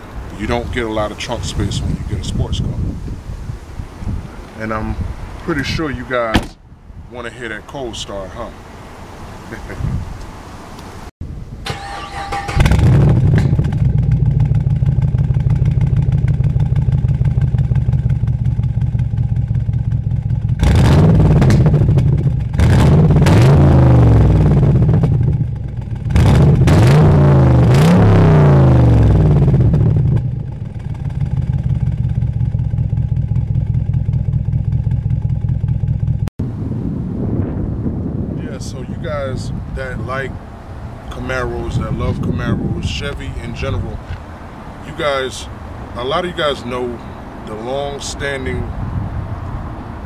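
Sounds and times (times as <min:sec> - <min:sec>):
starter motor cranking: 0:11.7 - 0:14.0
car engine idling and revving: 0:11.7 - 0:36.6, 0:42.6 - 0:47.5, 0:48.5 - 0:50.0.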